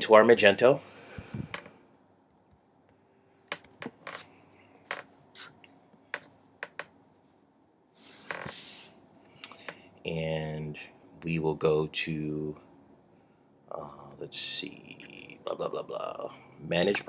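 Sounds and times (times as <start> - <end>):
soft rustle: 7.2 - 9.0.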